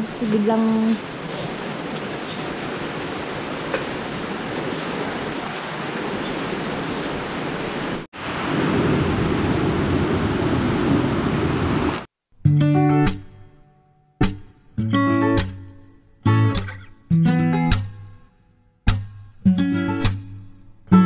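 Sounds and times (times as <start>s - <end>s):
steady rain falling: 0.0s - 12.1s.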